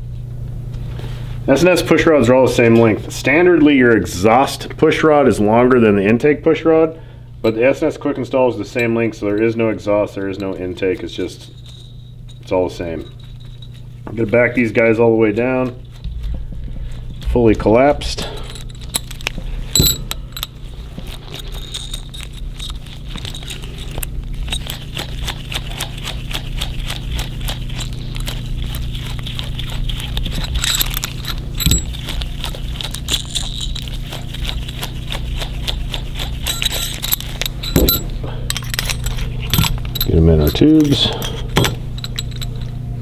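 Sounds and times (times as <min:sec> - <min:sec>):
steady low hum: 0:00.0 - 0:43.0
metal clicks and scrapes: 0:18.3 - 0:42.7.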